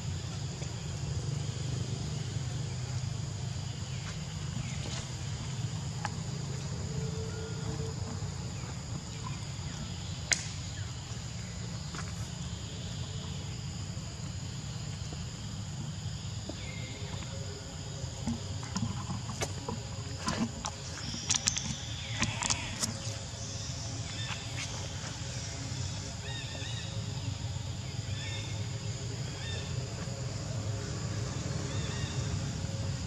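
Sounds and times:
insect buzz: 0:00.0 - 0:33.0.

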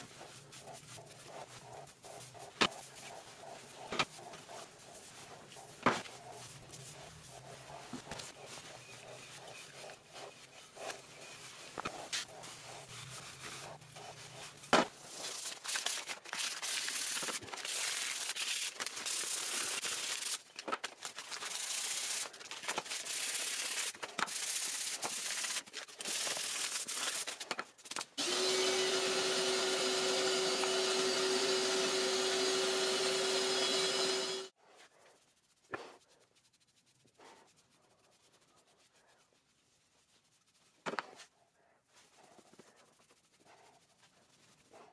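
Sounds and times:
hand rubbing on wood: 0:00.0 - 0:16.0, 0:28.4 - 0:41.3.

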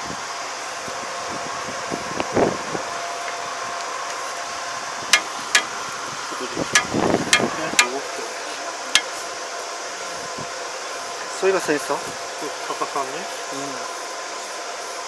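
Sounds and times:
steady hum: 0:00.0 - 0:15.0
sharp metal clanks: 0:05.1 - 0:05.7, 0:06.8 - 0:08.0, 0:09.0 - 0:09.2.

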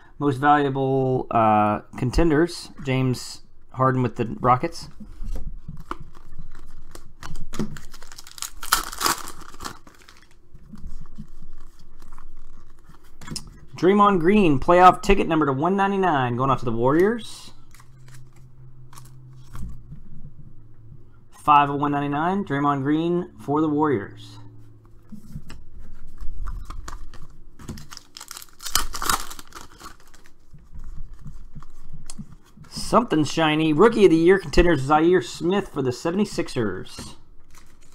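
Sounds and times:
card sleeves rustling and clicking: 0:05.1 - 0:13.2, 0:25.1 - 0:32.6
trading cards being flipped: 0:16.9 - 0:19.8, 0:25.1 - 0:32.6.

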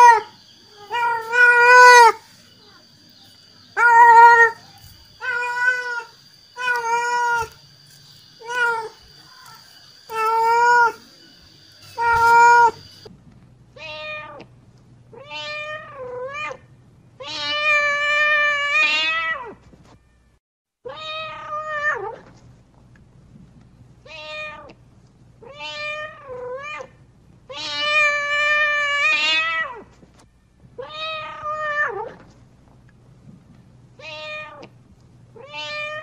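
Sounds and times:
cat meowing: 0:00.0 - 0:02.2, 0:03.8 - 0:04.6, 0:05.2 - 0:07.5, 0:08.4 - 0:11.0, 0:11.9 - 0:12.9, 0:20.9 - 0:22.2, 0:24.1 - 0:24.7, 0:25.4 - 0:26.9, 0:30.8 - 0:32.2, 0:34.0 - 0:34.7, 0:35.4 - 0:36.0.

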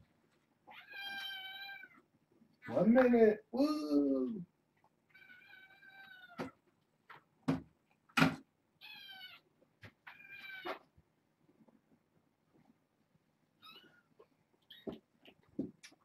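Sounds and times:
kittens meowing: 0:00.7 - 0:02.0, 0:05.1 - 0:06.5, 0:08.8 - 0:09.5, 0:13.6 - 0:15.0.

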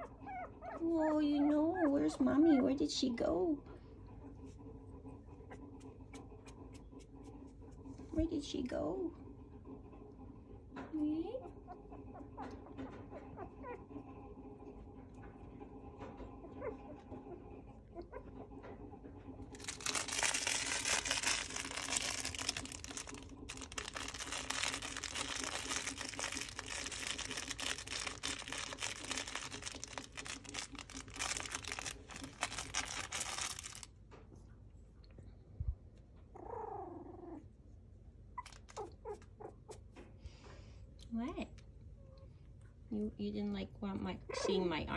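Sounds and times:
puppy squeaks: 0:00.0 - 0:02.8, 0:38.4 - 0:39.8
puppy whimpering: 0:00.0 - 0:02.9, 0:11.4 - 0:14.0, 0:16.3 - 0:18.6, 0:36.3 - 0:37.5, 0:38.4 - 0:39.8
plush toy rustling: 0:19.5 - 0:33.9, 0:38.4 - 0:38.9.

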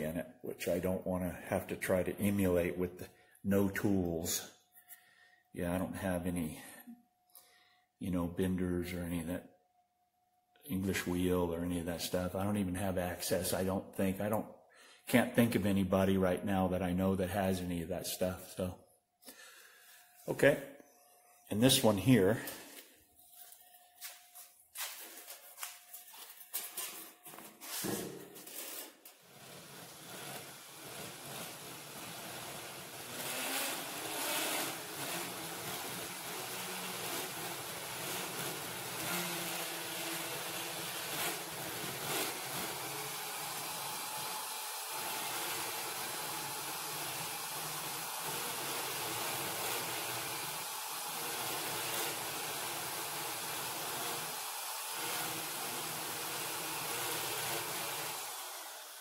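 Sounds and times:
electric drill boring into steel: 0:29.0 - 0:59.0.

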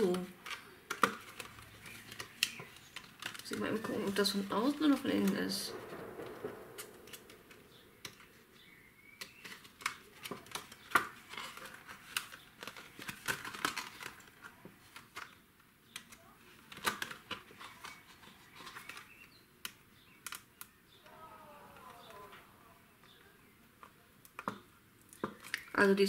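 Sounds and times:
plastic box crinkling: 0:00.0 - 0:19.4.

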